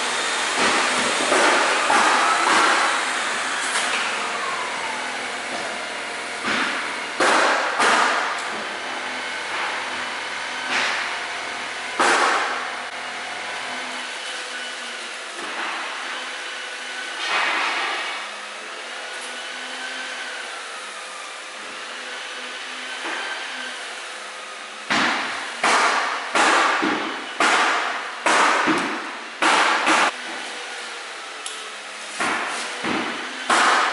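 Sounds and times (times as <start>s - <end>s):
vacuum motor running: 0.0s - 24.9s.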